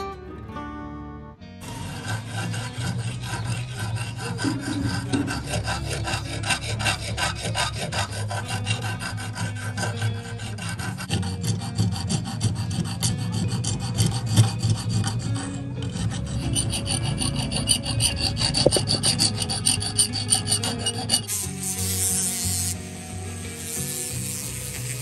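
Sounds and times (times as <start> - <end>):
hand file rasping on metal: 1.6 - 25.0.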